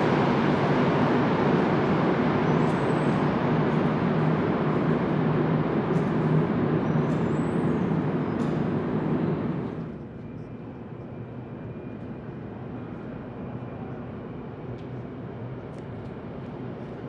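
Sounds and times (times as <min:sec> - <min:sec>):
station hum: 0:00.0 - 0:10.0
metro train rolling in tunnel: 0:00.0 - 0:17.0.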